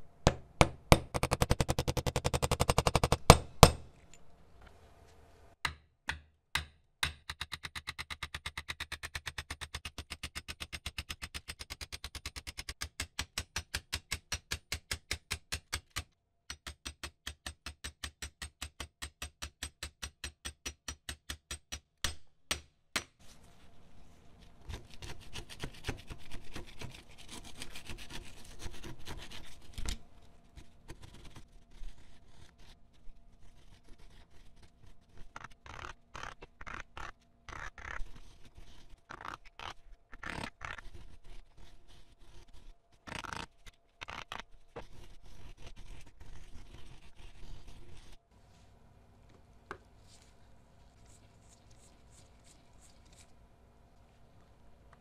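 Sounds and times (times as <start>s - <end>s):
continuous scraping rub: 23.2s - 53.4s
hand rubbing metal: 33.4s - 48.8s.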